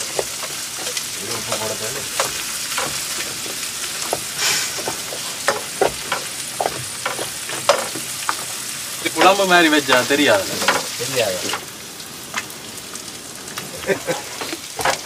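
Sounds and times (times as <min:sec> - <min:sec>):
skimmer scraping and tapping pan: 0:00.0 - 0:11.8
food sizzling in a frying pan: 0:00.0 - 0:15.0.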